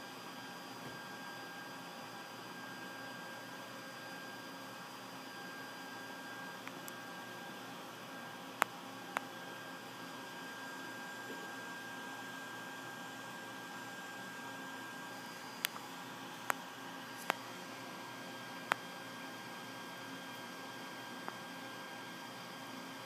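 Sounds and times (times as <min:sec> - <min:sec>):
room noise hiss and hum: 0:00.0 - 0:23.0.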